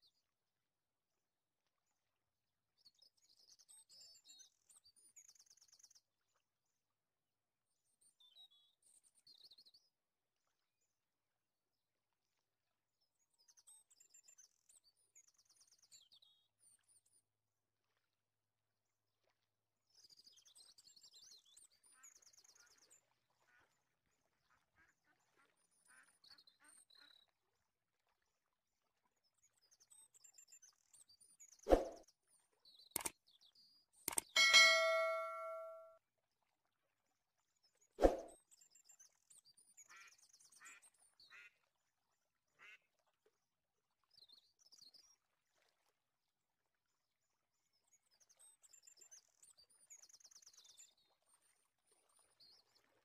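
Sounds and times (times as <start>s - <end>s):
faint high chirps: 34.4s - 35.9s.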